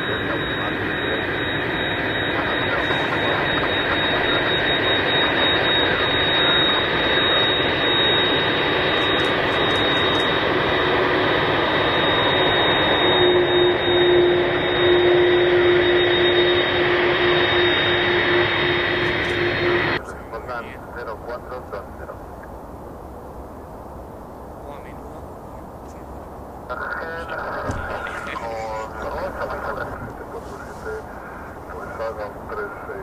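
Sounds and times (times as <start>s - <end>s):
lower steady tone: 0.0s - 20.0s
jet engines running loudly: 0.0s - 33.0s.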